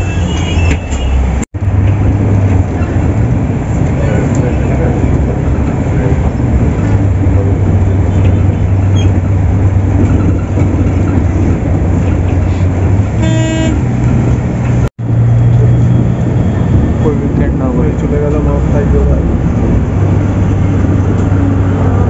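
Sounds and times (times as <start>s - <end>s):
bus engine drone: 0.0s - 22.0s
road noise: 0.0s - 22.0s
vehicle horn honk: 13.2s - 13.8s.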